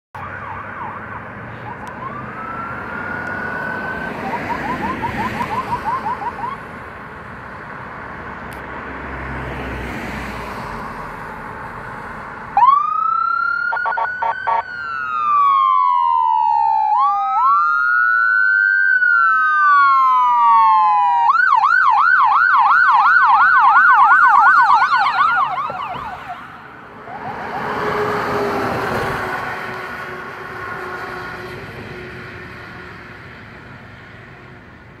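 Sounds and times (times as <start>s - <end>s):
siren blips: 0.2s - 6.6s, 12.6s - 28.5s
faint siren wail and yelp: 0.2s - 6.7s, 12.5s - 32.9s
emergency siren wailing and yelping: 0.2s - 6.8s, 12.4s - 32.8s
truck engine and tyres passing: 0.2s - 35.0s.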